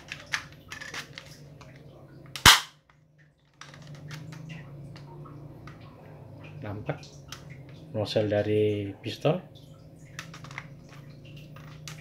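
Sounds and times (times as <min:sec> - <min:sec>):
airsoft pistol cocking clicks: 0:02.4 - 0:02.8
airsoft pistol shot: 0:02.4 - 0:02.8.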